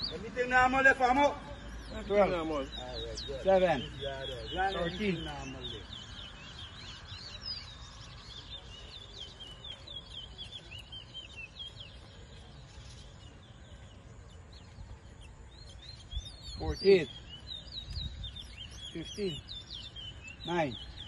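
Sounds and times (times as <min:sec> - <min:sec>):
finches singing high whistled notes: 0:00.0 - 0:21.0
low background noise: 0:00.0 - 0:21.0.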